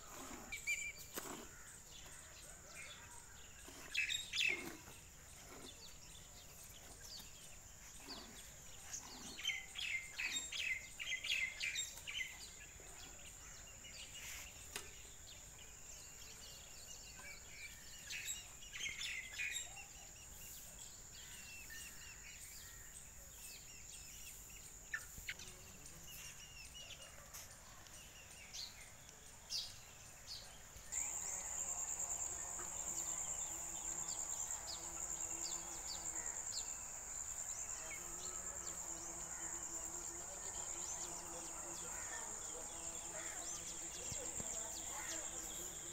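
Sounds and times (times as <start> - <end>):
birds chirping: 0.0 - 45.9
high-pitched insect buzz: 31.0 - 45.9.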